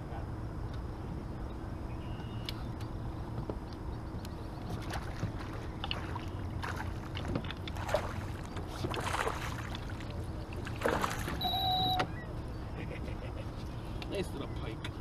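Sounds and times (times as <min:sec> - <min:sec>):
fish splashing at water surface: 0:04.9 - 0:10.0, 0:10.6 - 0:11.4
electronic beep: 0:11.4 - 0:12.3.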